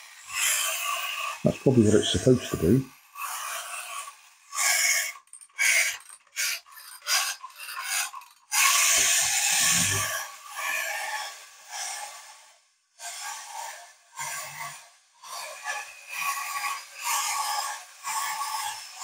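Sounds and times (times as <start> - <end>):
clockwork toy whirring: 0.0 - 19.0.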